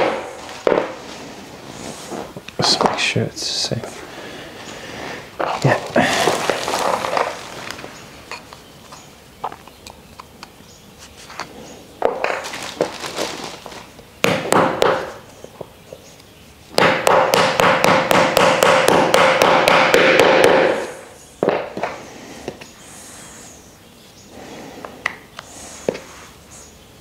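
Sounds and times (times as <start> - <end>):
mallet tapping wood: 16.8 - 21.9.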